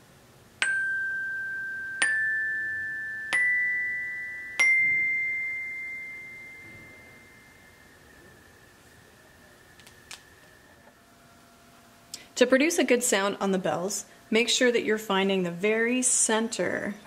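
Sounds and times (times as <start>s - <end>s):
glockenspiel notes ringing: 0.6s - 10.9s.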